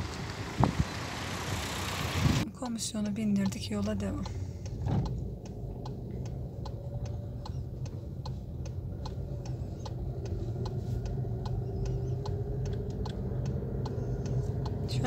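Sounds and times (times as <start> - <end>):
car engine hum: 0.0 - 15.0
car turn signal ticking: 2.6 - 15.0.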